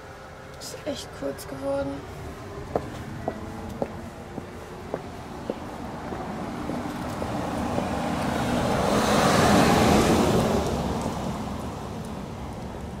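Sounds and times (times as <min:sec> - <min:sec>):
car driving past: 0:02.4 - 0:12.0.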